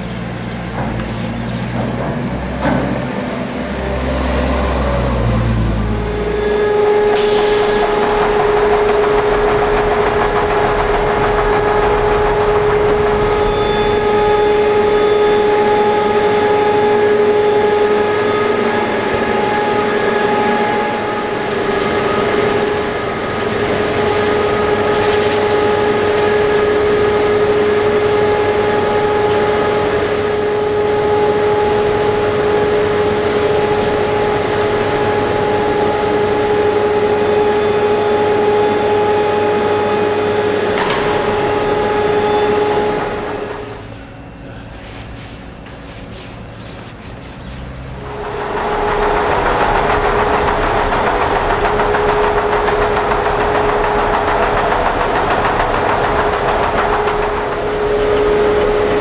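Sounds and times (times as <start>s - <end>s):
machine noise: 0.0s - 59.0s
electric drive whining: 5.6s - 44.8s.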